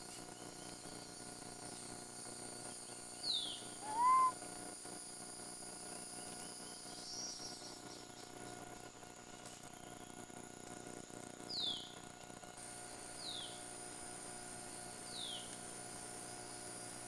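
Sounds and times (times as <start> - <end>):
insect drone: 0.0 - 17.0
bird whistling: 3.3 - 4.4
faint high bird call: 3.3 - 4.4.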